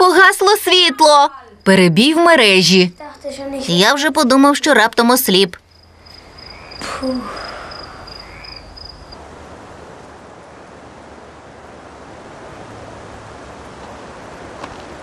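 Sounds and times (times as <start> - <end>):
crickets chirping: 0.0 - 15.0
wind blowing through window: 6.0 - 15.0.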